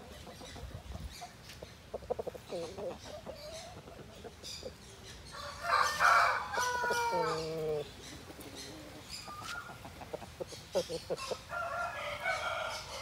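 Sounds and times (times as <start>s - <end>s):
rooster clucking: 1.9s - 4.7s, 5.6s - 13.0s
rooster crowing: 5.4s - 7.6s, 11.5s - 13.0s.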